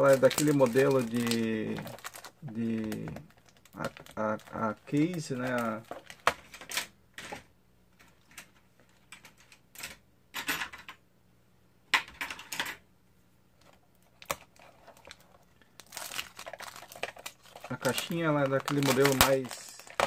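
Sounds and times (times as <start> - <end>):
wrapper rustling: 0.0 - 6.6, 14.1 - 20.0.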